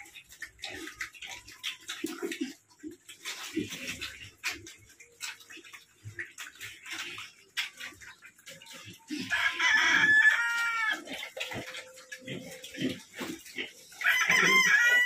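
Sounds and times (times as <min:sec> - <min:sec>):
pigs chomping at a trough: 0:00.0 - 0:15.0
rooster crowing: 0:09.3 - 0:11.0, 0:14.0 - 0:15.0.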